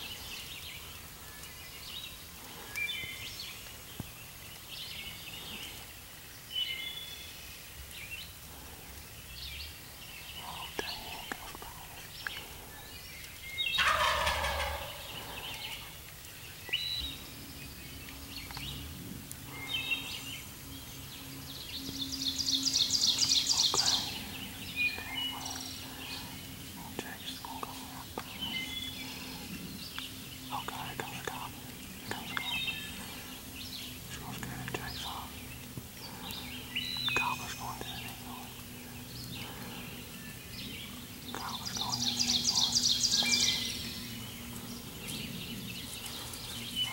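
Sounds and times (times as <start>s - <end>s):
songbirds chirping: 0.0s - 46.9s
turkey gobbling: 13.8s - 15.9s.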